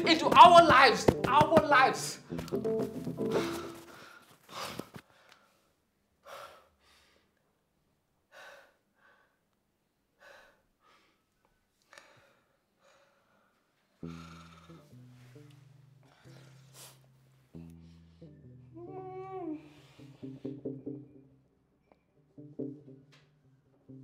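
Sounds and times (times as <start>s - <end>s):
music: 0.0s - 4.1s, 14.0s - 24.0s
man breathing deeply: 3.2s - 7.4s, 8.3s - 9.5s, 10.2s - 18.4s, 19.6s - 20.6s.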